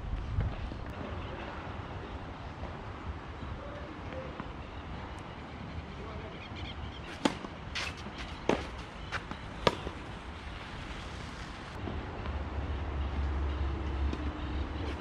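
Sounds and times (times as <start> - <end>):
tennis ball hits: 7.1 - 10.2.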